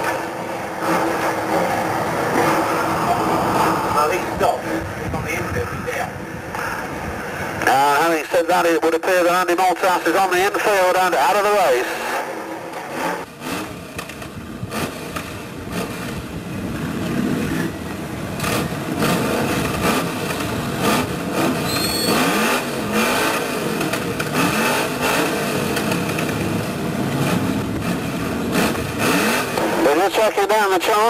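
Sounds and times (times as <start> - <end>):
car engines revving: 0.0 - 31.0
high-pitched squeal: 21.4 - 23.2.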